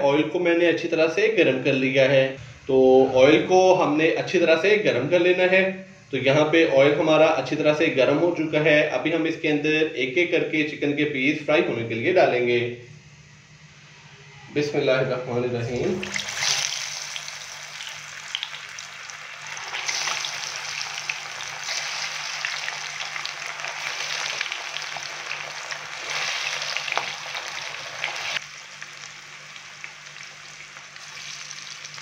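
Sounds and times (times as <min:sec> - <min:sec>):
chicken deep-frying in oil: 0:15.8 - 0:32.0.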